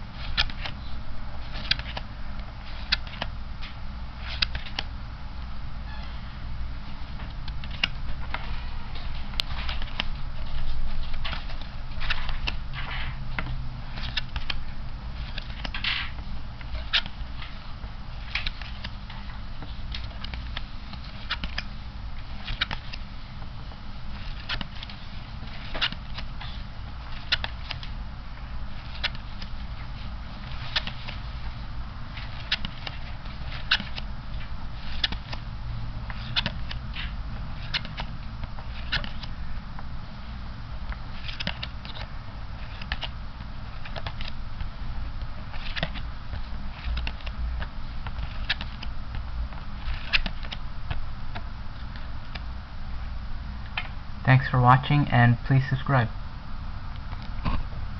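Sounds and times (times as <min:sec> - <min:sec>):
low steady hum: 0:00.0 - 0:57.9
playing cards clicking: 0:00.2 - 0:00.8, 0:01.4 - 0:02.1, 0:02.7 - 0:04.9, 0:07.2 - 0:17.6, 0:18.2 - 0:21.7, 0:22.3 - 0:23.5, 0:24.1 - 0:28.0, 0:28.7 - 0:31.2, 0:32.1 - 0:35.4, 0:36.1 - 0:39.4, 0:40.8 - 0:44.7, 0:45.3 - 0:52.5.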